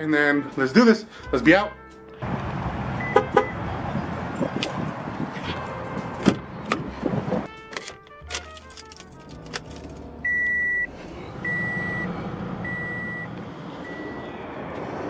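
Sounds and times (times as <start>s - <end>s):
dashboard warning chime beeping: 3.0s - 3.6s, 10.2s - 14.4s
key clicking in ignition: 7.6s - 10.1s
car engine starting and idling: 8.2s - 15.0s.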